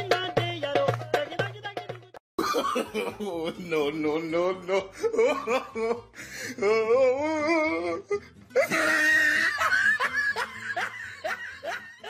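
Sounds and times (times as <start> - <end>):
person laughing: 2.4 - 4.0, 4.7 - 12.0.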